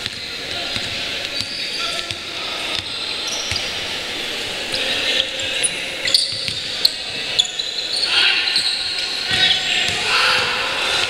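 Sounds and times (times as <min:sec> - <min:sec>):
basketball bouncing: 0:00.0 - 0:03.7
sneakers squeaking: 0:00.0 - 0:11.0.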